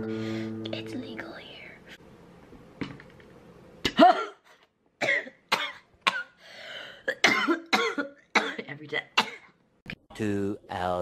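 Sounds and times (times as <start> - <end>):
woman coughing hard: 3.8 - 6.4, 7.0 - 9.6.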